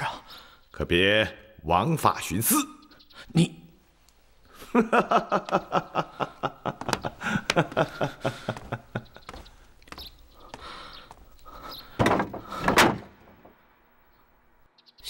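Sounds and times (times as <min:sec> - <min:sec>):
man laughing loudly: 0:04.6 - 0:09.3.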